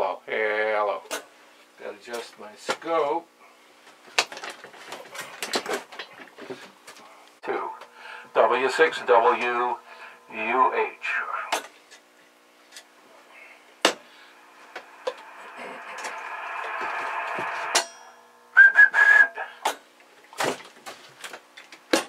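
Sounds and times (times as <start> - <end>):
hiss: 14.0 - 17.8
high whistle into microphone: 14.2 - 19.6.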